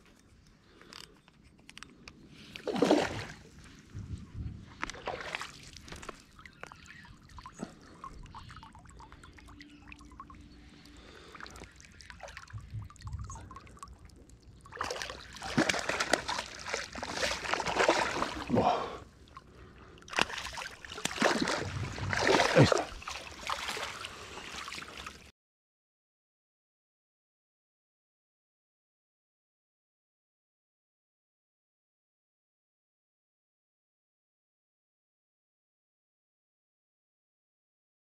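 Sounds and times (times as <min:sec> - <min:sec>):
faint water trickling: 0:01.7 - 0:25.3
water splashing and sloshing: 0:01.7 - 0:25.3.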